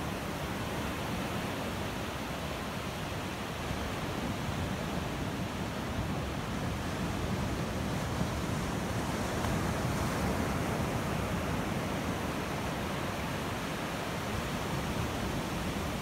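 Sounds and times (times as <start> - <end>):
ocean surf breaking on beach: 0.0 - 16.0.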